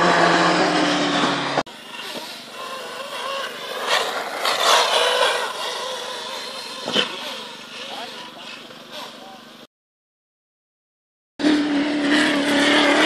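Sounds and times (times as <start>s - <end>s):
model car motor revving: 0.0s - 9.4s.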